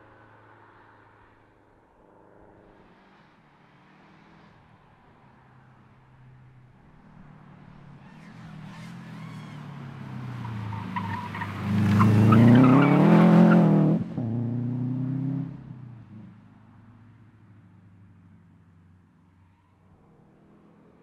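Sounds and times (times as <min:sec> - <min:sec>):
tyre squeal: 0:08.0 - 0:09.7
rally car engine accelerating: 0:08.0 - 0:15.8.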